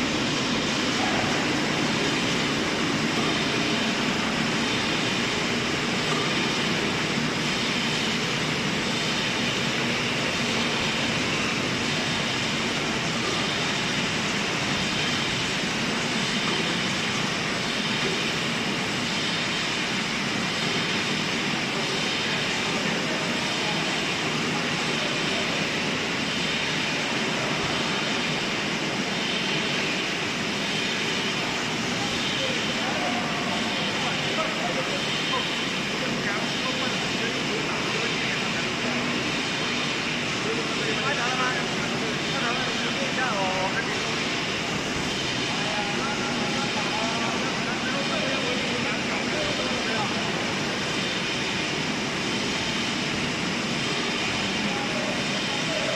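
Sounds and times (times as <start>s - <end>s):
bottling line machinery din: 0.0s - 55.9s.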